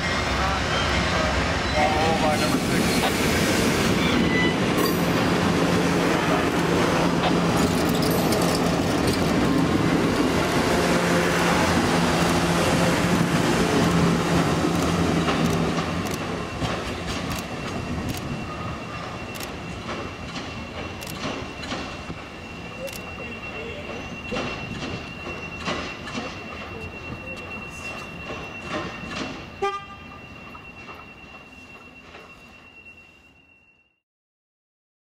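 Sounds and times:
train cars rolling on rails: 0.0s - 33.8s.

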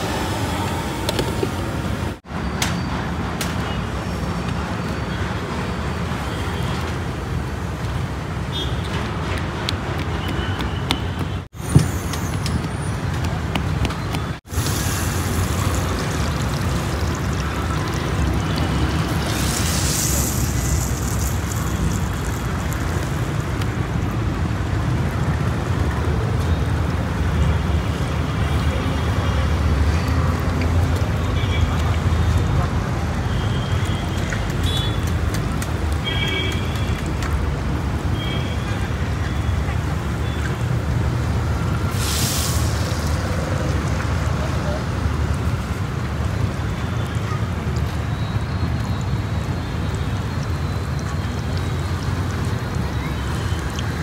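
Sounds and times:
oil sizzling while deep-frying: 14.4s - 24.4s, 41.0s - 46.2s.

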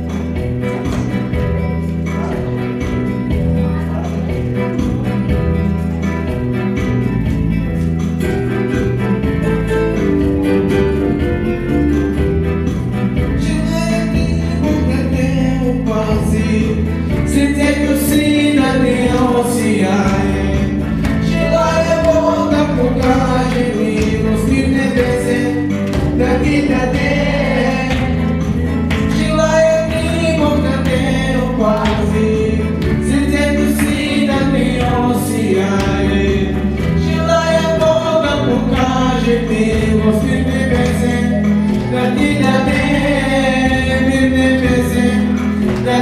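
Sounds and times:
sustained bass line: 0.0s - 46.0s
person singing: 13.1s - 46.0s.

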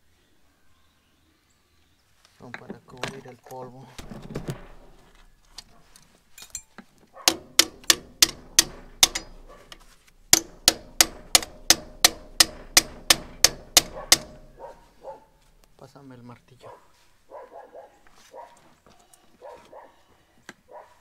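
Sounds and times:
metal tool striking metal: 7.3s - 14.7s.

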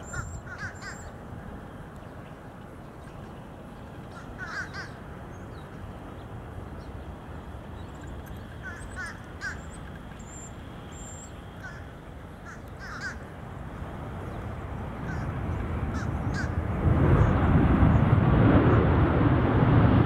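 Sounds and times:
crows cawing: 0.0s - 1.1s, 4.1s - 5.0s, 8.6s - 9.7s, 11.6s - 13.3s, 15.0s - 15.3s, 15.9s - 16.6s
low background rumble: 0.0s - 20.0s.

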